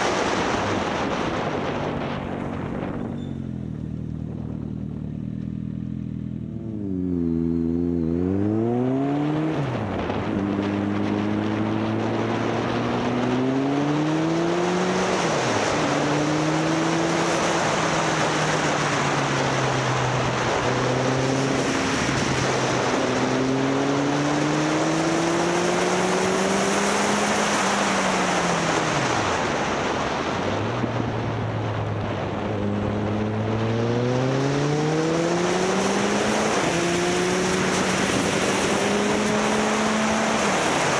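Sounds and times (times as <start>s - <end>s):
wind rush on microphone: 0.0s - 4.9s, 9.1s - 40.9s
motorcycle engine revving: 0.0s - 40.9s.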